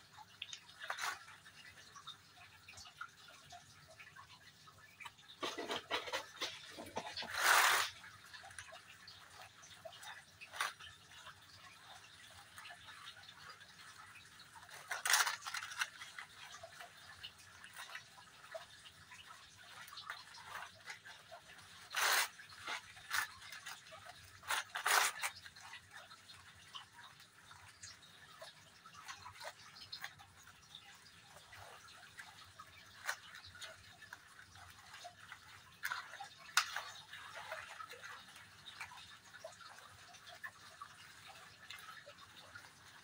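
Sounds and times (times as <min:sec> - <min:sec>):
scraping in plastic tray: 0:05.4 - 0:07.9.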